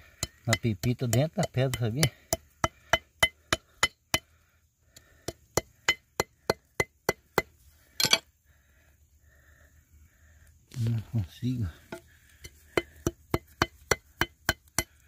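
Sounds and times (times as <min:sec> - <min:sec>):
hammer clinking on stone: 0:08.0 - 0:08.2.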